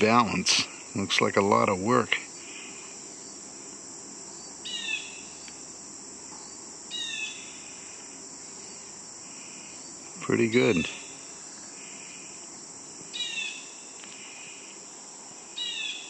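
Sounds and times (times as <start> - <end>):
high-pitched insect chorus: 0.0 - 16.0.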